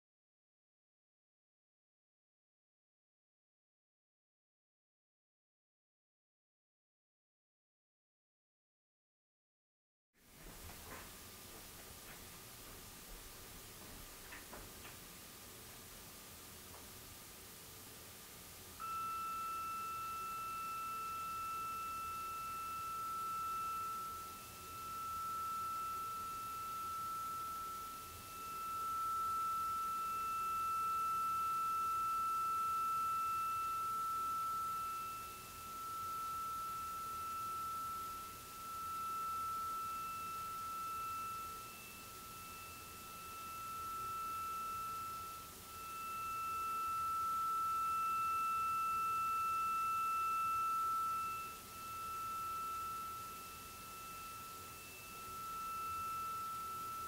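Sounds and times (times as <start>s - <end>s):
high-pitched pure tone: 18.6s - 57.0s.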